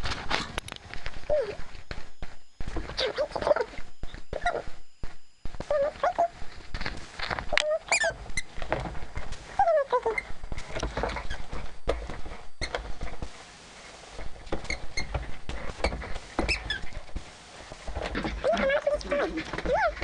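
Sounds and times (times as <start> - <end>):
high toy squeaks: 7.6 - 8.5
dog rummaging rustling and clattering: 17.9 - 20.0.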